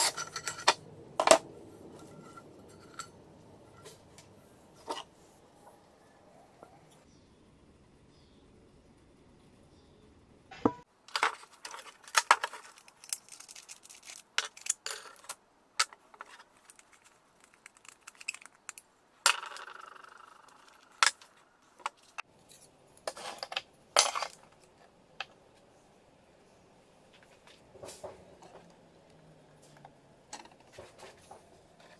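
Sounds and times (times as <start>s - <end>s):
metal parts clinking on table: 0.0s - 1.4s, 2.0s - 3.2s.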